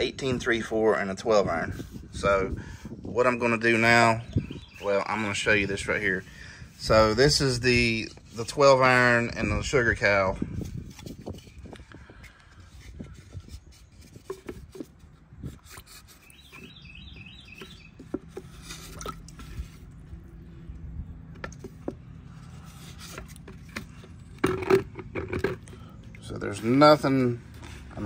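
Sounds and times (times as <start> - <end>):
stick stirring liquid in plastic pitcher: 10.6 - 20.2, 21.4 - 26.2.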